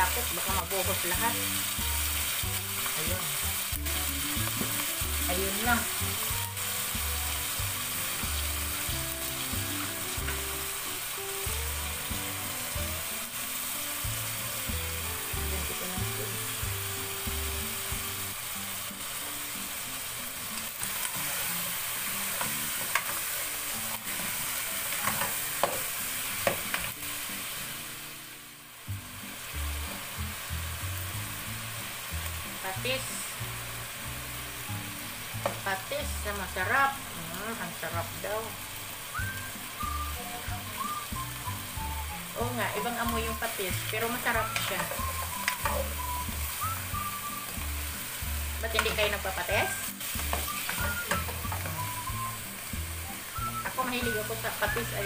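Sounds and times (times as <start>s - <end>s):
chicken sizzling in oil: 0.0s - 55.0s.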